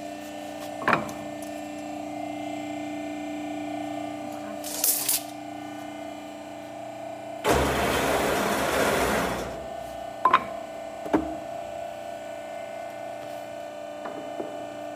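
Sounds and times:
machine humming: 7.4 - 11.0.

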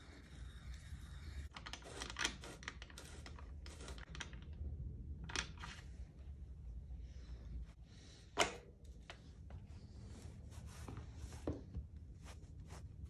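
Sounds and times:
low steady hum: 2.9 - 13.0.

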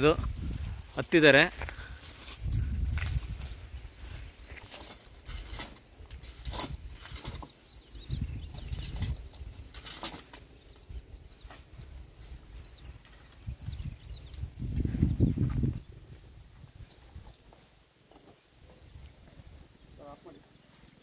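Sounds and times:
palm fronds rustling and flapping: 0.0 - 7.6
wind rumbling on microphone: 0.0 - 17.5.

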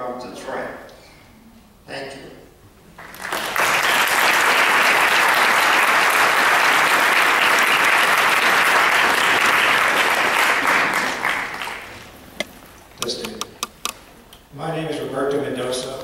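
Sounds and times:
audience applauding: 3.0 - 12.1.

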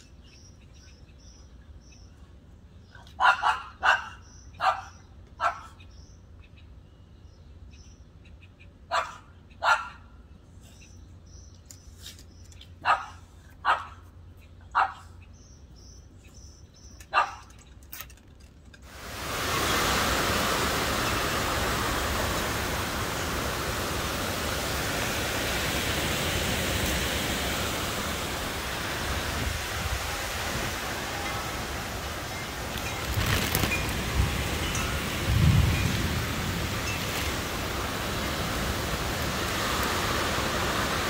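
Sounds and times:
animal barks: 3.1 - 5.8, 8.9 - 10.1, 12.8 - 14.0, 14.7 - 15.2
heavy rain: 18.9 - 41.0
storm wind: 18.9 - 41.0.

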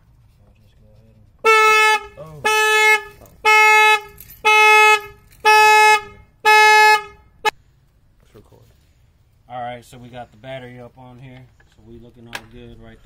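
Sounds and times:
car horn honking: 1.4 - 7.6.

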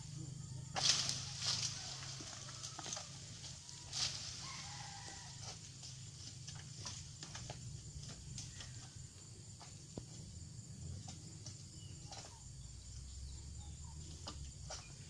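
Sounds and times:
fronds rustling swish: 0.8 - 5.0.

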